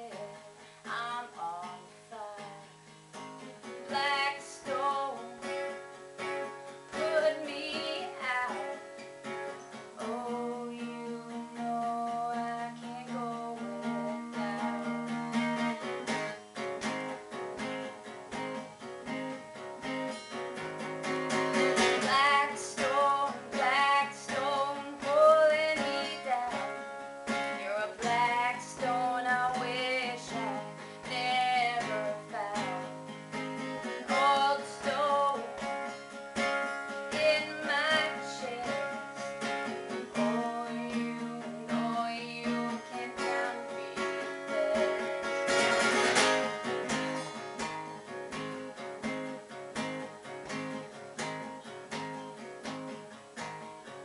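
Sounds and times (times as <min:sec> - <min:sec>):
woman singing: 0:00.0 - 0:16.2, 0:21.5 - 0:47.2
acoustic guitar: 0:00.0 - 0:54.0.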